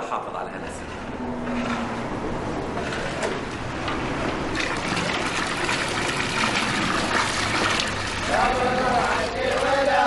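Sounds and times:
liquid pouring into pot: 0:03.9 - 0:09.6.

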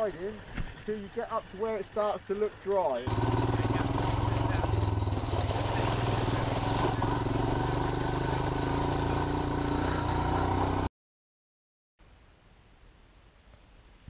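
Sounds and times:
motorcycle engine running: 0:03.0 - 0:10.9.

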